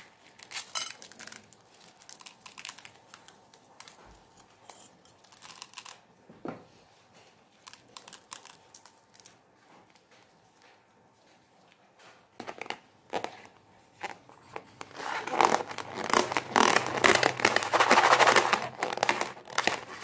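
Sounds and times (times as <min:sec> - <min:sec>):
rubber crinkling: 0:00.0 - 0:04.5, 0:12.4 - 0:20.0.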